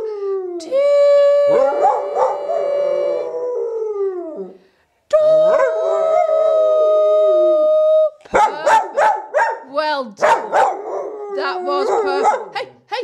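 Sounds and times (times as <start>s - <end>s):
person singing long notes: 0.0s - 8.3s
dog howling: 0.7s - 4.6s, 10.6s - 12.3s.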